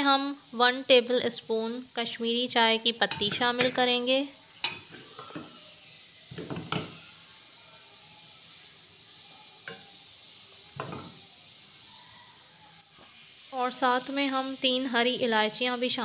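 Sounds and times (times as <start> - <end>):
metal saucepan clinking: 3.1 - 7.1, 9.4 - 10.0.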